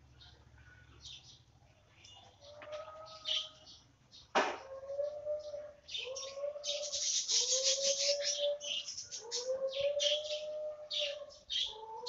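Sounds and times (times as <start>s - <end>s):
doves cooing: 2.3s - 12.0s
high-pitched bird chirping: 5.0s - 12.0s.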